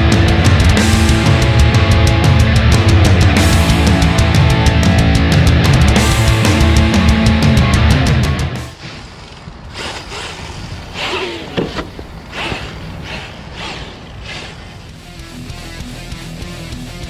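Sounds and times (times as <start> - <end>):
tires churning sand and stones: 8.6 - 15.2
toy truck motor bursts: 8.7 - 15.1.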